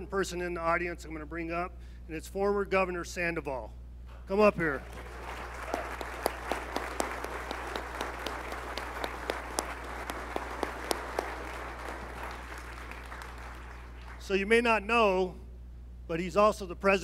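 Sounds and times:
audience applauding: 4.9s - 14.3s.

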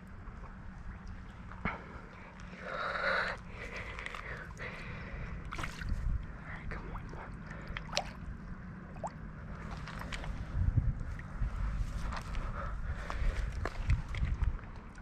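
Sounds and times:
low rumble: 0.0s - 15.0s
water splashing and sloshing: 0.0s - 15.0s.

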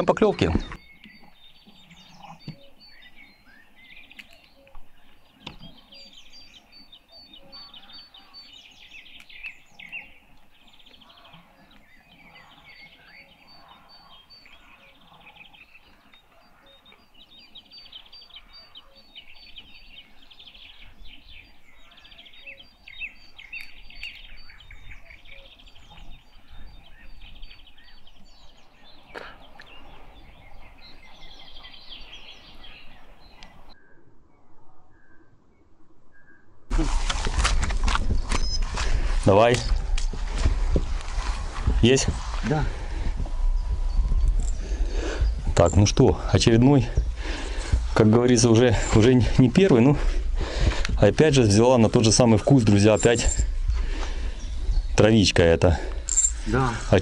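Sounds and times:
songbirds chirping and singing: 0.0s - 57.0s
low wind rumble on microphone: 36.7s - 55.2s.

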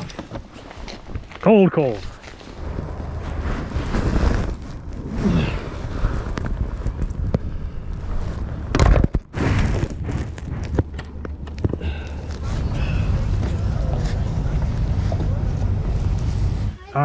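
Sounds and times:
low rumble: 2.4s - 17.0s
camera handling rubbing and knocking: 9.9s - 11.8s.

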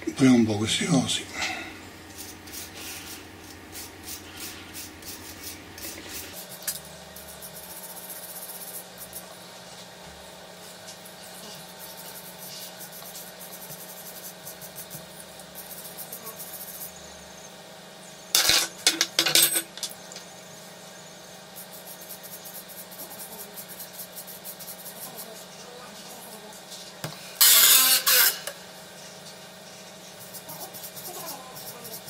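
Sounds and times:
wire brush scratching metal: 27.4s - 32.0s.

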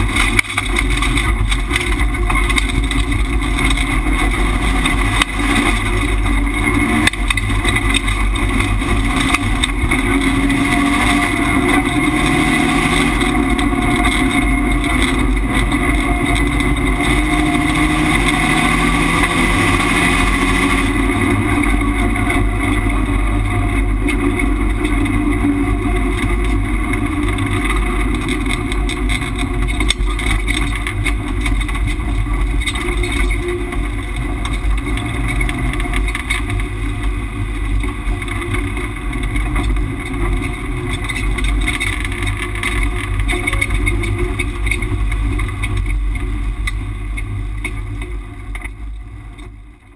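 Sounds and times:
racing car engine revving: 0.0s - 30.6s.

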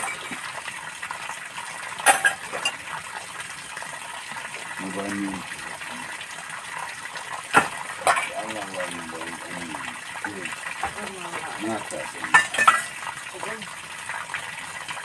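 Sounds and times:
water running: 0.0s - 15.0s
steel dishes clinking: 2.0s - 2.8s, 7.6s - 8.5s, 12.3s - 12.9s.

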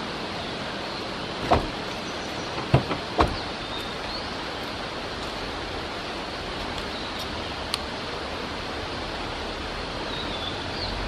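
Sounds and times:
distant car traffic hiss: 0.0s - 11.0s
sharp thumps: 2.5s - 3.5s
bird song whistled notes: 10.1s - 11.0s.

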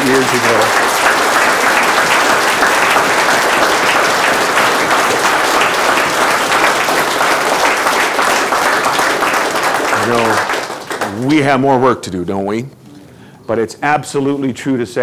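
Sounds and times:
audience applauding: 0.0s - 11.6s.

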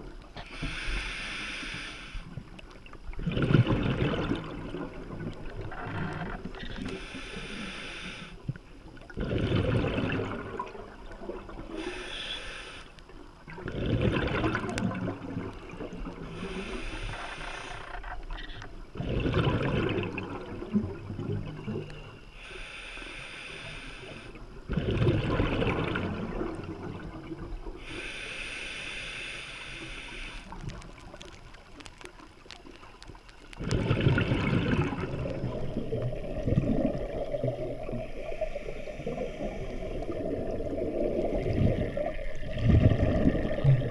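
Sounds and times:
bubbling exhaust underwater: 0.0s - 43.9s
regulator hissing inhalation: 0.4s - 2.3s, 6.9s - 8.4s, 11.8s - 13.0s, 16.4s - 17.9s, 22.3s - 24.4s, 27.8s - 30.6s, 38.1s - 40.1s.

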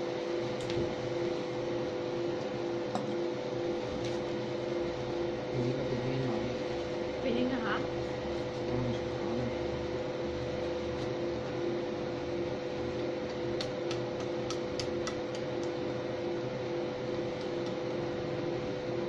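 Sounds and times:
laser machine humming: 0.0s - 19.0s.

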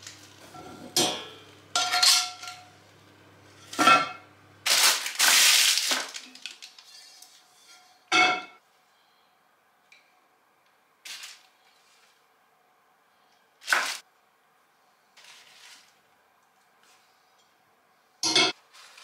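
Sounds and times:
rough metal scrape: 6.8s - 8.0s
cast iron cookware clanking: 7.7s - 8.6s, 18.2s - 18.6s.

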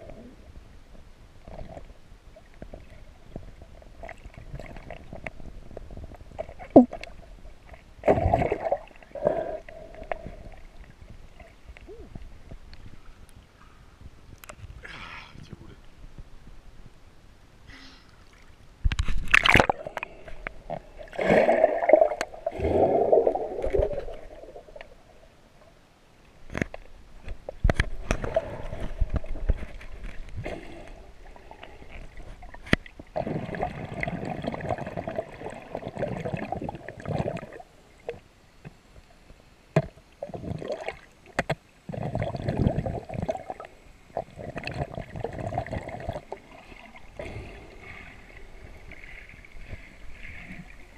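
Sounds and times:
underwater gurgling and sloshing: 0.0s - 14.8s, 18.2s - 50.9s
sea water splashing: 20.8s - 25.2s.

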